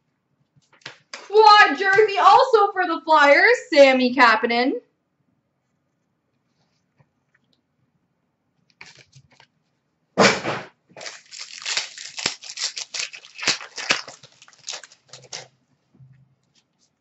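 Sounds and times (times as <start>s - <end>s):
wrapper and cards crinkling: 8.7s - 9.5s, 11.0s - 15.5s
wrapper ripping: 8.8s - 9.2s, 11.0s - 15.5s.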